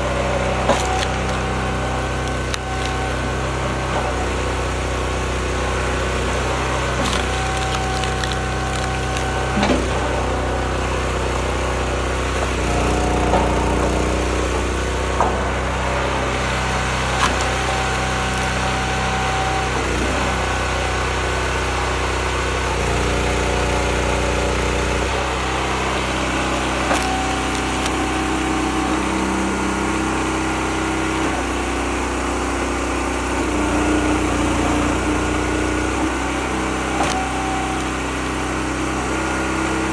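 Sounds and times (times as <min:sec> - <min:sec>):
log splitter engine running: 0:00.0 - 0:39.9
wood splitting cracks: 0:00.2 - 0:04.0, 0:06.3 - 0:10.0, 0:16.2 - 0:20.0, 0:24.4 - 0:28.4, 0:37.0 - 0:38.0.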